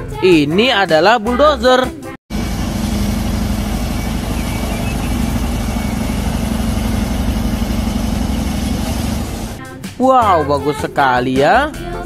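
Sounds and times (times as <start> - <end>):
bulldozer diesel engine running: 2.3 - 9.6.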